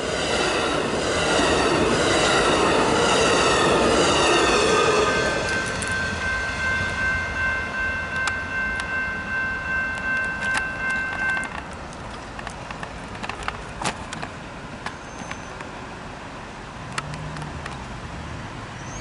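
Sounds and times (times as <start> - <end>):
railroad crossing bell ringing: 0.0 - 12.5
train rumble: 0.0 - 19.0.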